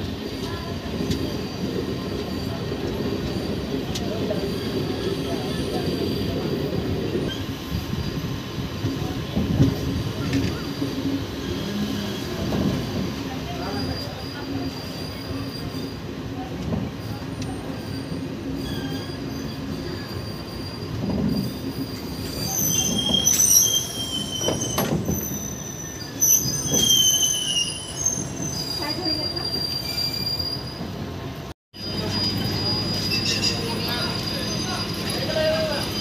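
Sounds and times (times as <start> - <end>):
train rumble: 0.0 - 27.1
wheels squealing on rails: 0.0 - 36.0.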